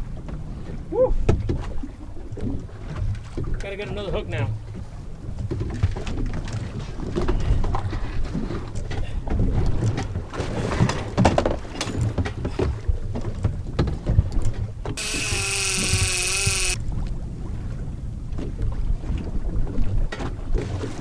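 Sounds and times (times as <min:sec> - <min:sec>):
water against boat: 0:00.0 - 0:16.4, 0:17.3 - 0:21.0
loud wavering whine: 0:15.0 - 0:16.8.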